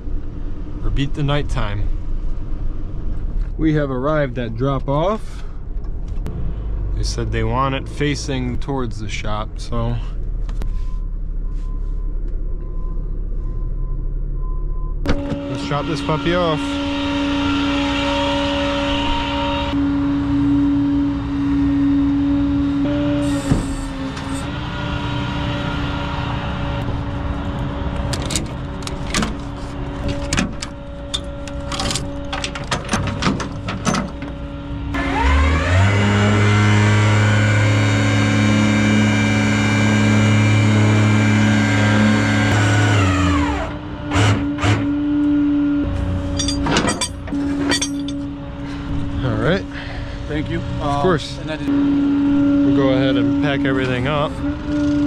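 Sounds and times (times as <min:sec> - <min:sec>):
chains clanking on metal: 0:46.3 - 0:48.2.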